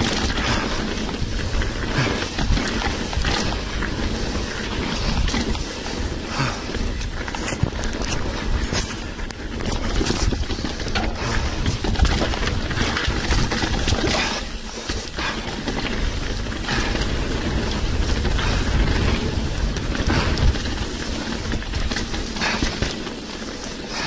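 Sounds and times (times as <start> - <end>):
bike rattling: 0.0 - 24.0
bike tyres rumbling over ground: 0.0 - 24.0
wind noise on microphone: 0.0 - 24.0.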